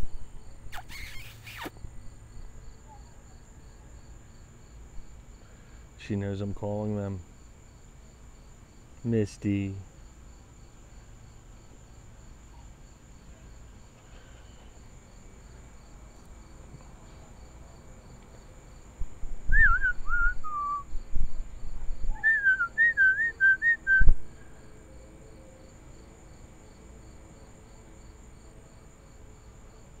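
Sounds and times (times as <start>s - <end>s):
crickets chirping: 0.0s - 30.0s
person whistling: 19.5s - 20.9s, 22.2s - 24.2s.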